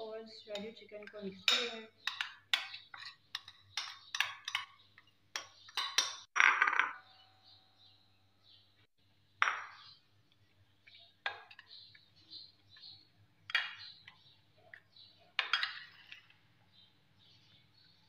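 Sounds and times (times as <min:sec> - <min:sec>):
metal spoon clinking on glass bowl: 0:00.5 - 0:04.8, 0:05.4 - 0:06.3.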